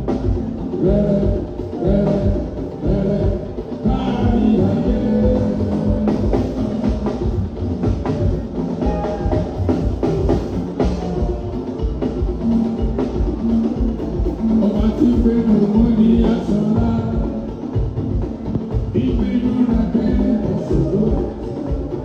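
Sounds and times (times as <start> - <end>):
person singing: 0.0 - 11.6, 14.2 - 22.0
drum and percussion beat: 0.0 - 22.0.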